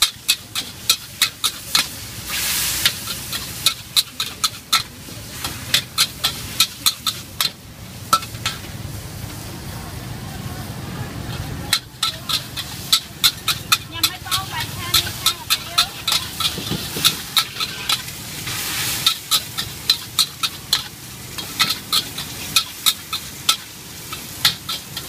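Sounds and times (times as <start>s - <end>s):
food sizzling: 0.0s - 25.0s
metal ladle clanking on wok: 2.8s - 8.7s, 11.7s - 18.1s, 18.9s - 25.0s.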